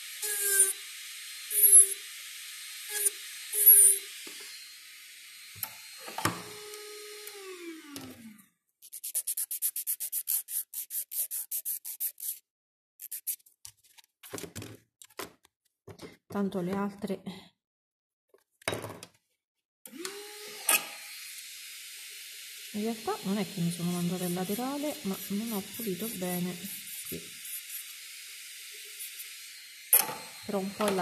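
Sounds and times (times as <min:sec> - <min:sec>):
electric nail drill grinding: 0:00.0 - 0:08.4, 0:19.9 - 0:31.0
scratchy strokes on nail: 0:08.8 - 0:13.6, 0:23.6 - 0:28.0.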